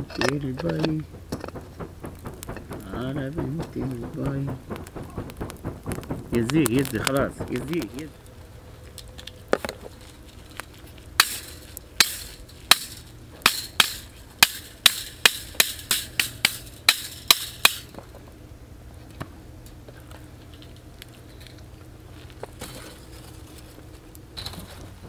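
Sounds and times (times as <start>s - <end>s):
sharp knocks in a pan: 0.1s - 8.0s, 11.2s - 18.0s.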